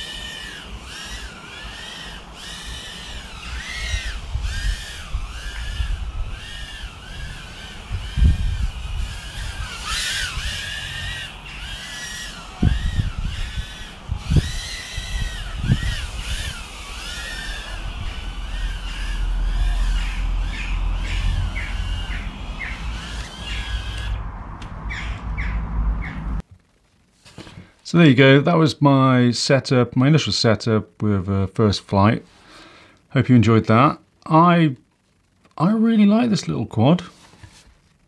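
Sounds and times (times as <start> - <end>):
quadcopter motors whining: 0.0 - 26.4.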